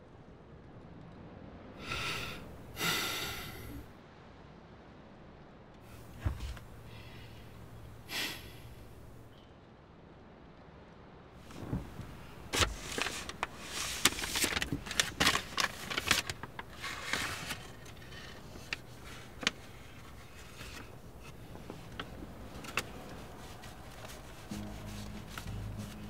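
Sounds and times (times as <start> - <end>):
low steady hum: 1.9 - 3.9, 5.9 - 9.4, 11.4 - 26.0
paper crinkling and rustling: 5.9 - 8.0, 11.5 - 26.0
soft clicks of banknotes: 11.5 - 26.0.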